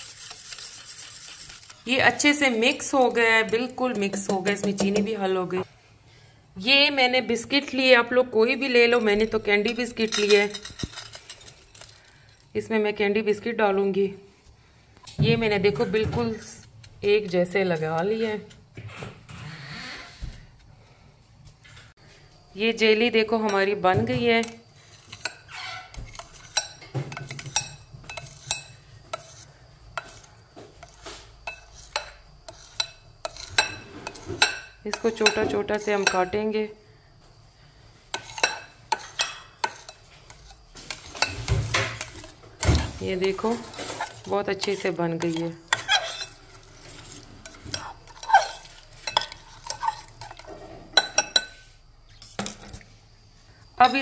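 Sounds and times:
knife scraping and tapping glass: 24.4s - 36.2s, 38.1s - 52.8s.

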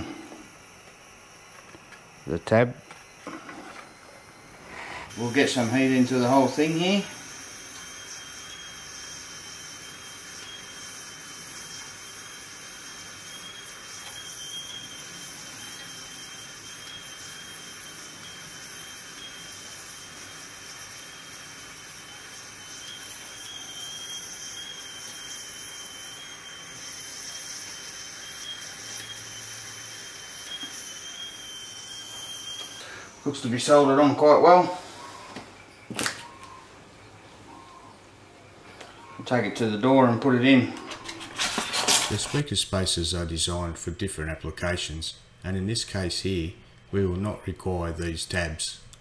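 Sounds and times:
gas soldering iron hissing: 0.0s - 35.4s
thin high whistle: 4.3s - 36.6s.

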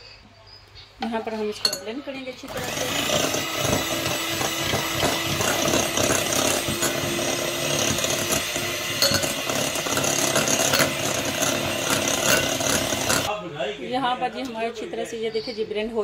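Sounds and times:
electric hand mixer whisking: 2.4s - 13.3s.

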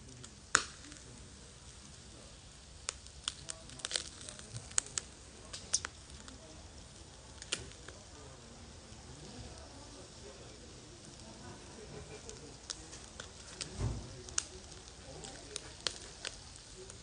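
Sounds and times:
charcoal fire crackling and popping: 0.0s - 17.0s.

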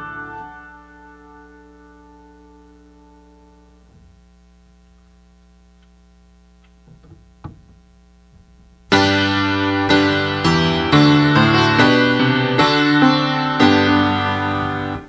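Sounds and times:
piano chords: 0.0s - 4.0s, 8.9s - 15.0s
low hum: 1.7s - 9.0s.

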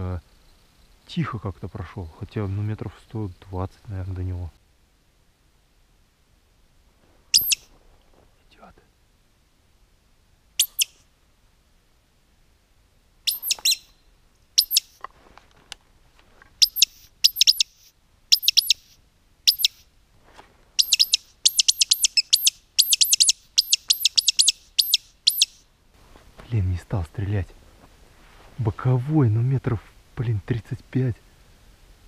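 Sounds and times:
bird call squeaky chirps: 7.3s - 7.7s, 10.6s - 11.0s, 13.3s - 15.0s, 16.6s - 19.9s, 20.8s - 25.7s.

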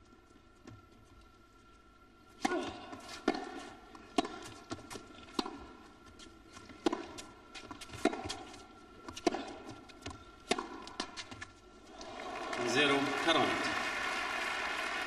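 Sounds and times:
tennis ball bouncing on court: 2.4s - 5.7s, 6.8s - 11.5s
tennis ball hit by rackets: 2.4s - 5.7s, 6.8s - 11.5s.

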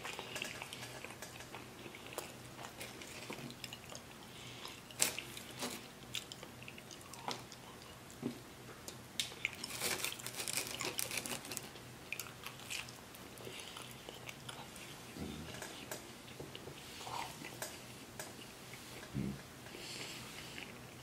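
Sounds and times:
chewing and crunching pizza: 0.0s - 8.2s, 8.9s - 21.0s.

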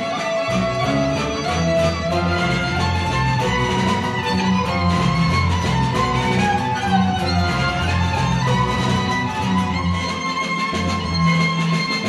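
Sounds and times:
bowed folk fiddle melody: 0.0s - 12.0s
string orchestra accompaniment: 0.0s - 12.0s.

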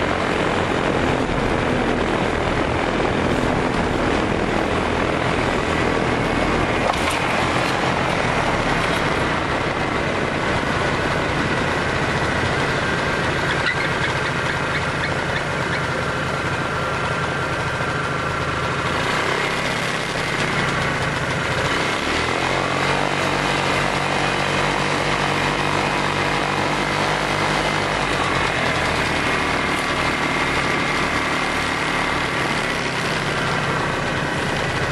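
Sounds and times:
engine running: 0.0s - 34.9s.

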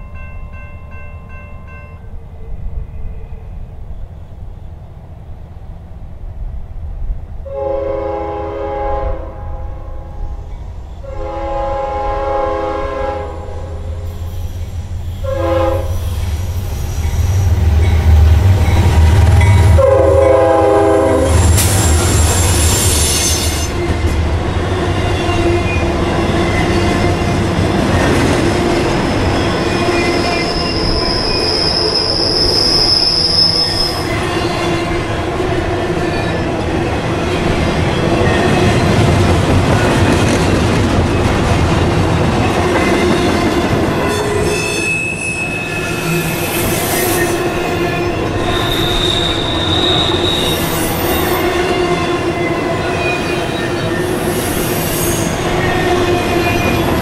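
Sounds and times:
locomotive horn chord: 7.5s - 10.1s, 11.0s - 13.8s, 15.2s - 16.0s, 19.6s - 21.5s
high wheel squeal: 14.0s - 19.7s, 21.2s - 24.0s, 29.1s - 34.9s, 44.1s - 57.0s.

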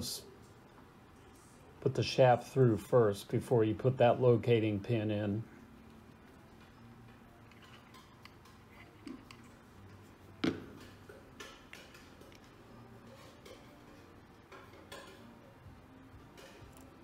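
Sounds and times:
small metal parts clicking: 7.4s - 9.4s.

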